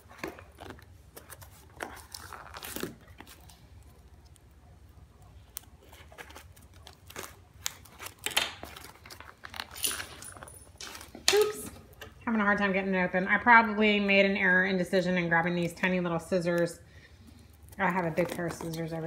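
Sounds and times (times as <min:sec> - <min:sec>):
tape and cardboard tearing: 0:00.0 - 0:03.5.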